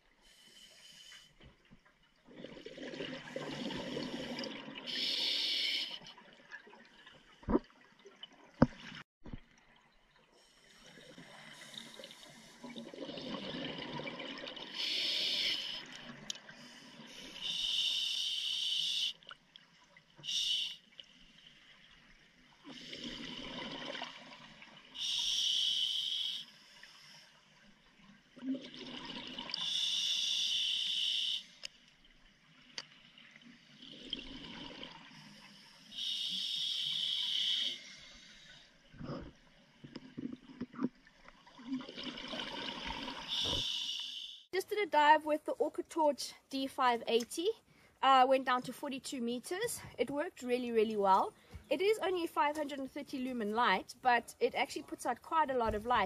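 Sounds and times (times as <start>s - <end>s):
rushing bubbles: 2.3s - 4.9s
diver breathing through regulator: 3.4s - 6.0s, 14.8s - 15.9s, 43.3s - 44.5s.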